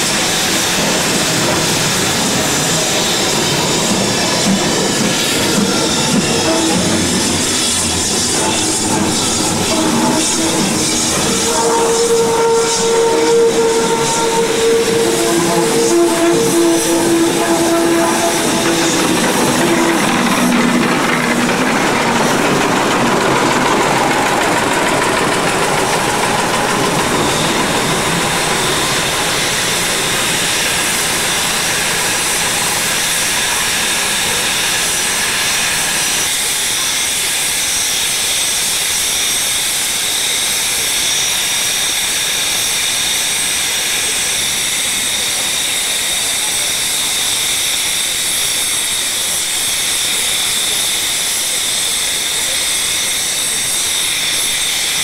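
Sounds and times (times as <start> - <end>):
loud hiss of escaping steam: 0.0 - 55.0.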